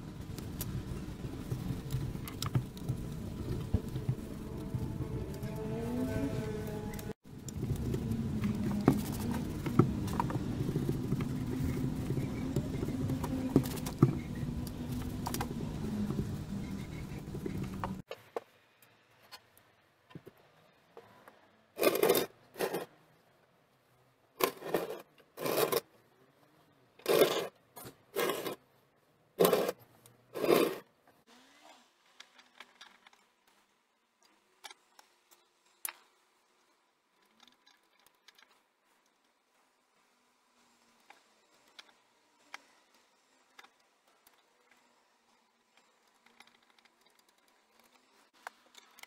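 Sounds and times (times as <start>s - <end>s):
scraping and scrubbing: 0.6s - 18.1s, 21.8s - 23.0s, 24.4s - 25.8s, 27.0s - 28.6s, 29.4s - 30.9s.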